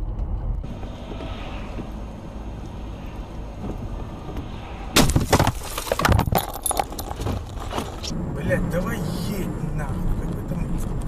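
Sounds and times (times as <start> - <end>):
road rumble inside car: 0.0 - 11.0
car crash impact: 4.9 - 8.1
debris rattling: 5.0 - 8.1
glass breaking: 5.0 - 8.1.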